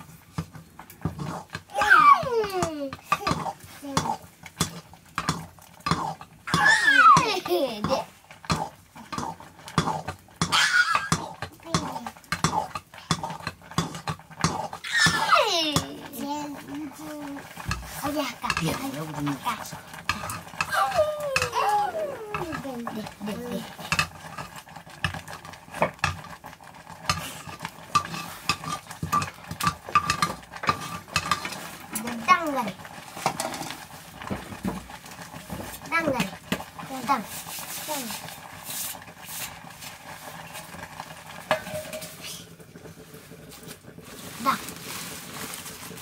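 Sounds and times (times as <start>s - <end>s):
wooden stick scraping metal pot: 0.0s - 42.4s
metal spoon scraping a metal pot: 1.0s - 1.6s, 8.5s - 15.9s, 17.6s - 19.1s, 19.9s - 20.7s, 27.1s - 31.8s, 41.5s - 42.2s
child squealing: 1.7s - 2.7s, 6.5s - 7.4s, 10.5s - 11.4s, 14.8s - 15.8s, 20.6s - 22.7s.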